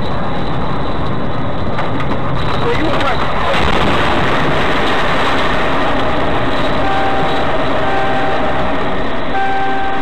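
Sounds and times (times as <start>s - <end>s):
vehicle rumbling: 0.0s - 10.0s
steady high tone: 6.8s - 10.0s.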